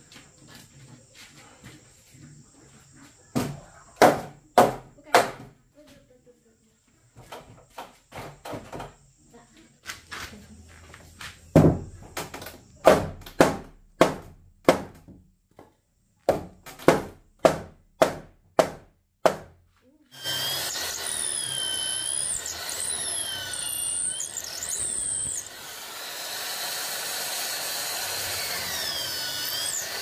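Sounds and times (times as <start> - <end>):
power tool whining: 20.1 - 30.0.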